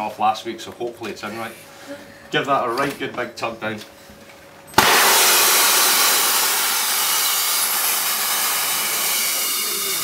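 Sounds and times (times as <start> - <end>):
gas canister hissing: 4.8 - 9.6.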